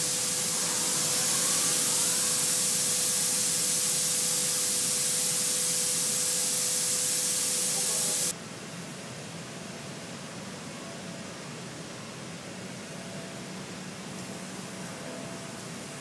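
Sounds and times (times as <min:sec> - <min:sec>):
hiss of air: 0:00.0 - 0:08.3
paint spray hiss: 0:00.0 - 0:08.3.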